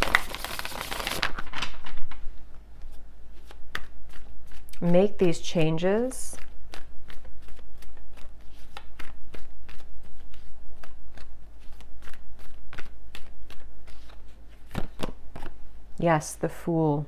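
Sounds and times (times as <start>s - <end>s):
cards being shuffled: 0.0s - 2.2s, 6.4s - 15.6s.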